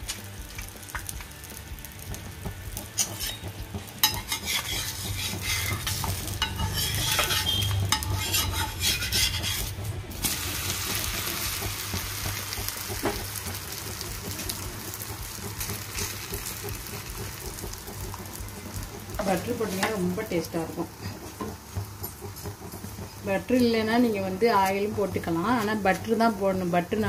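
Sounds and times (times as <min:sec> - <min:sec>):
butter sizzling on hot pan: 0:00.0 - 0:27.0
metal spatula scraping: 0:02.8 - 0:11.6, 0:18.6 - 0:24.8.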